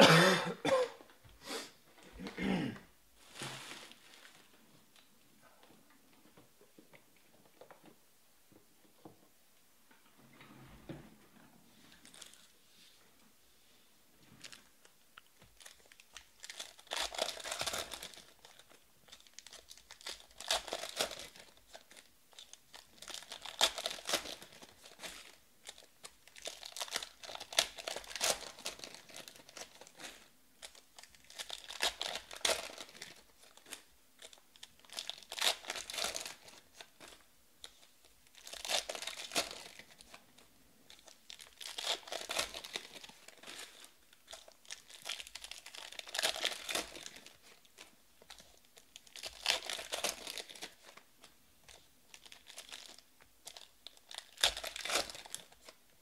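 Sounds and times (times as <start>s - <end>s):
foil wrappers tearing and crinkling: 15.6s - 40.2s, 40.9s - 51.1s, 51.7s - 55.8s.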